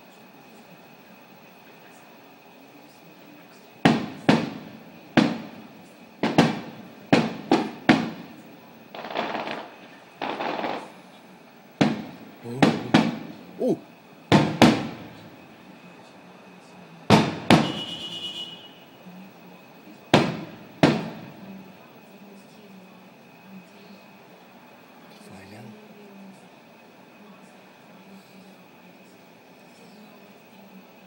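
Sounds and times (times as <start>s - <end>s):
fireworks bangs: 3.8s - 15.6s, 17.1s - 18.8s, 20.1s - 21.6s
fireworks rushing bursts: 3.8s - 15.7s, 17.1s - 18.6s, 20.1s - 21.6s.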